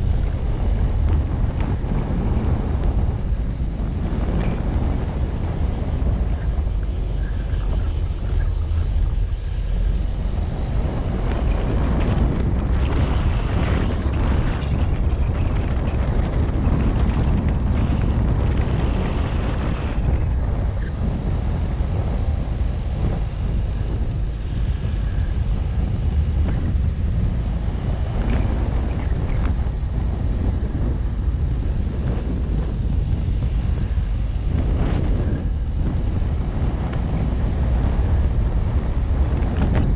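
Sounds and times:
road and tyre noise: 0.0 - 39.9
wind buffeting microphone: 0.0 - 39.9.

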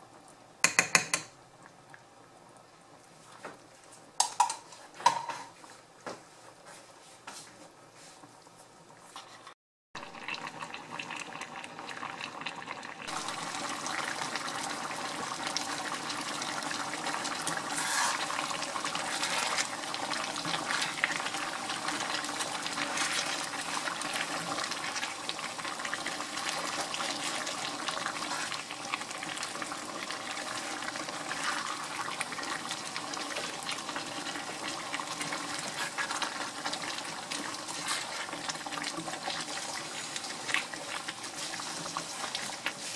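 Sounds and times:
stew bubbling in a pan: 7.8 - 42.9
wooden spatula stirring sauce: 30.5 - 32.4, 35.0 - 42.9.

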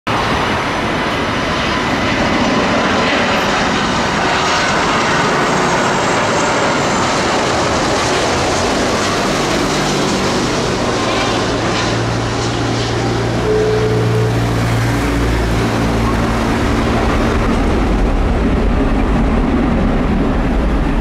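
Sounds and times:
jet engines roaring: 0.1 - 21.0.

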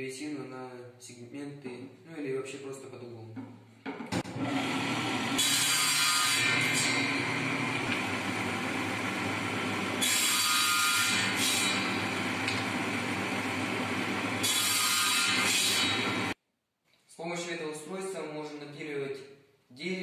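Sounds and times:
saw cutting wood: 4.2 - 16.4
table saw motor hum: 4.2 - 16.4.

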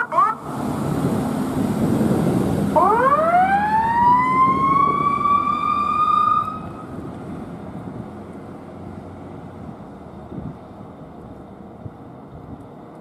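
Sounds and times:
fire truck siren: 0.0 - 1.0, 2.6 - 7.0
truck rumble driving away: 0.4 - 12.9.

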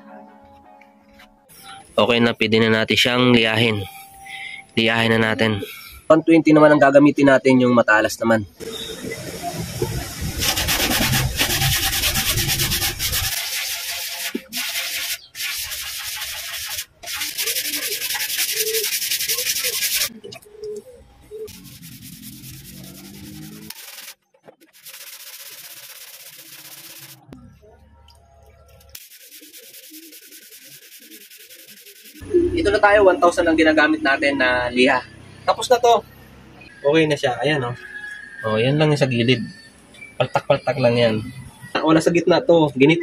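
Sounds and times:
sandpaper rubbing on metal: 10.4 - 20.1, 21.5 - 27.3, 28.9 - 32.2.

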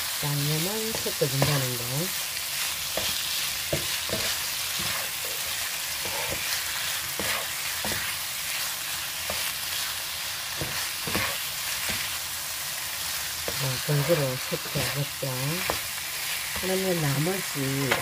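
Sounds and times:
food sizzling in a frying pan: 0.0 - 18.0
spoon scraping a pan: 2.6 - 9.9, 10.5 - 12.2, 13.4 - 16.7.

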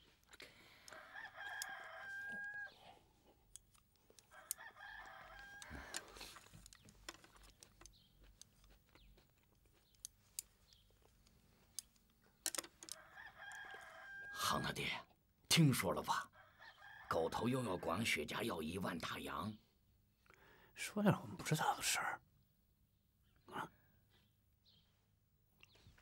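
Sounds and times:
rooster crowing: 0.9 - 2.8, 4.3 - 6.1, 12.9 - 14.6.

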